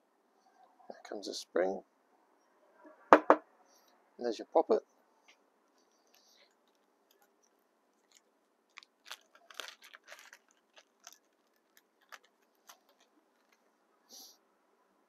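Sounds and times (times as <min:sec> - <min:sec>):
plastic bag crinkling: 0:05.8 - 0:13.7.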